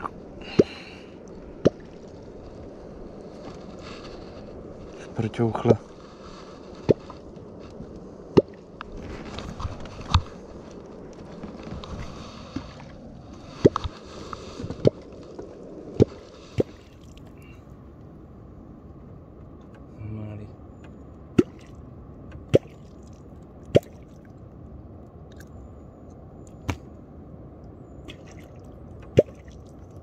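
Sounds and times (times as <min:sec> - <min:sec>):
water sloshing and dripping: 0:16.0 - 0:17.5, 0:20.8 - 0:24.5, 0:25.3 - 0:25.6, 0:28.0 - 0:30.0.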